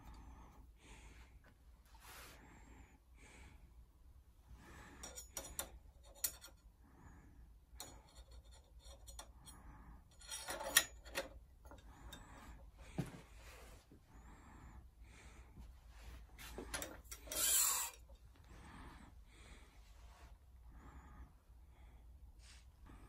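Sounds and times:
metal hanger clicking on metal: 16.7 - 18.2.

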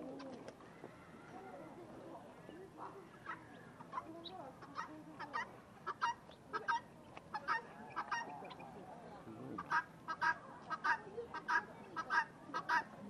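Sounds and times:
guineafowl harsh calls: 2.8 - 8.7, 9.6 - 13.0.

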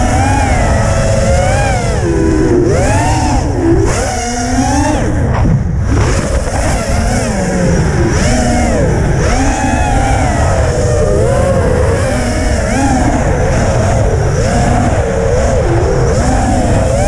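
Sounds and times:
quadcopter propellers whining: 0.0 - 17.0
steady low rumble: 0.0 - 17.0.

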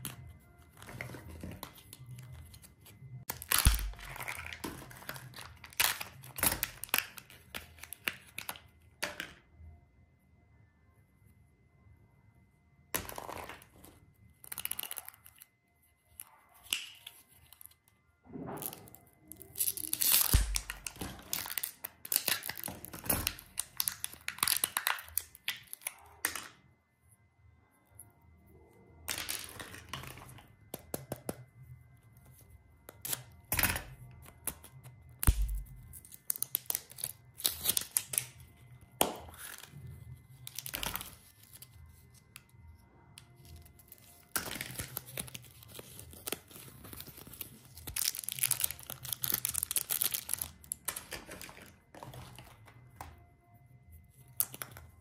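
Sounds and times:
wrappers rustling and tearing: 3.2 - 8.5, 18.7 - 25.9, 43.3 - 52.9.

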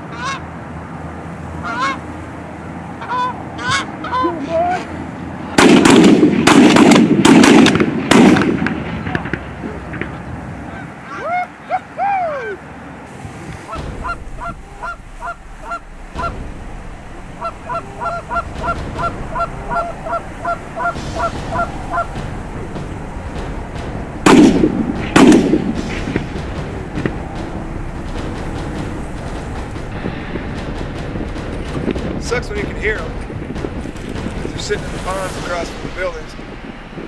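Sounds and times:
goose honking: 0.0 - 0.4, 1.6 - 2.0, 3.0 - 4.9, 13.7 - 16.4, 17.3 - 22.2
shotgun shots: 5.6 - 10.1, 13.8 - 36.4.

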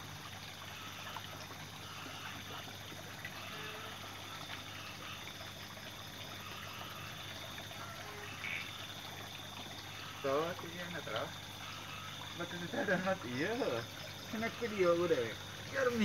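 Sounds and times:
even hiss: 9.9 - 16.0.

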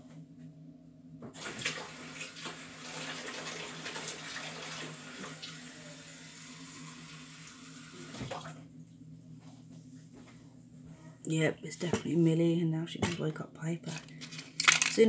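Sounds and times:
water running from a tap: 1.4 - 8.6.

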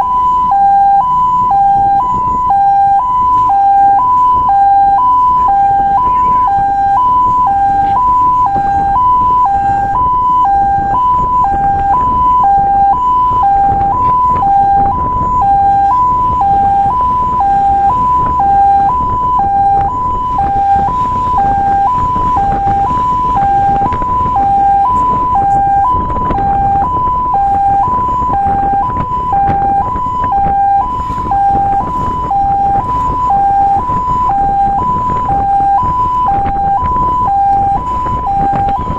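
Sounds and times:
truck rumbling on road: 0.0 - 38.9
two-tone siren wailing: 0.0 - 38.9.

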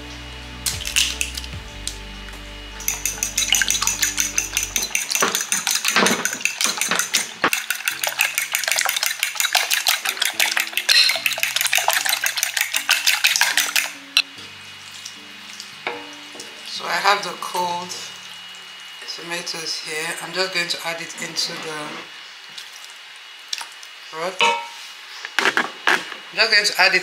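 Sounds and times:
fork clinking against glass bowl: 2.8 - 14.0.

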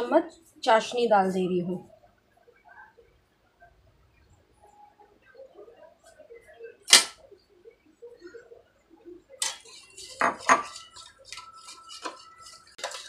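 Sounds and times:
spoon stirring curd: 9.3 - 13.0.

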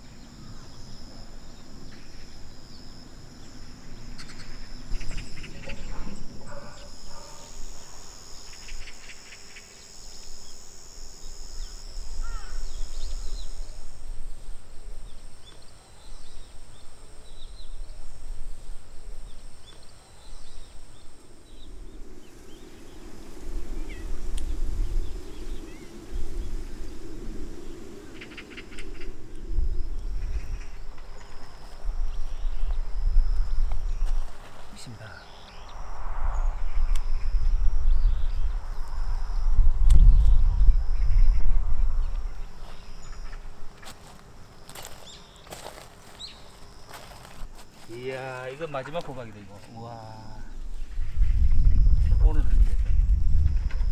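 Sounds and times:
insects trilling: 0.0 - 53.9
bird calls: 11.6 - 13.7, 27.6 - 29.2, 44.8 - 47.4.

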